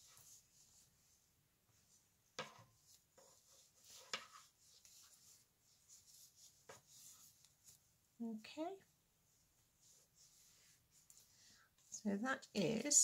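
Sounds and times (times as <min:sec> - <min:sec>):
yarn rubbing on needles: 0:02.8 - 0:08.0, 0:09.2 - 0:13.0.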